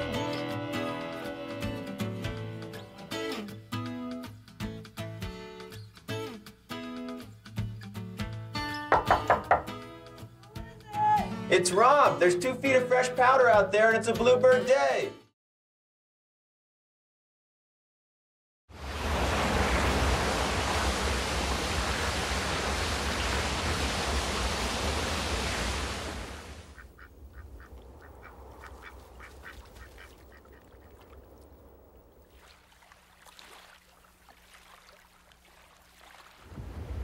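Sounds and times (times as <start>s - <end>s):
geese honking: 26.7s - 31.2s.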